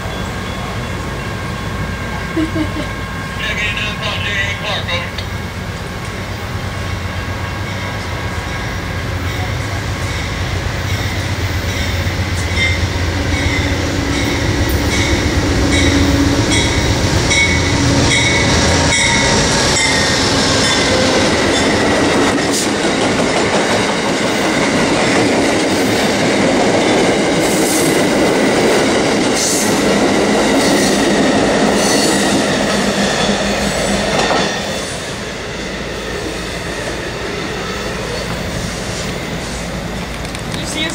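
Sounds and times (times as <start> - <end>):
diesel locomotive engine: 0.0 - 40.9
train wheels clicking over rail joints: 10.0 - 33.4.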